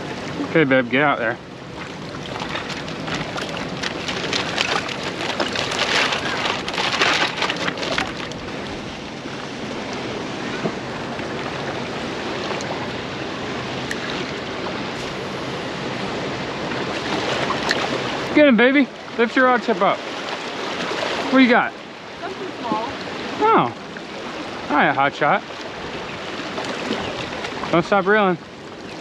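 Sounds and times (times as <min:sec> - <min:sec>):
wind: 0:00.0 - 0:29.0
water washing on rocks: 0:01.8 - 0:08.5.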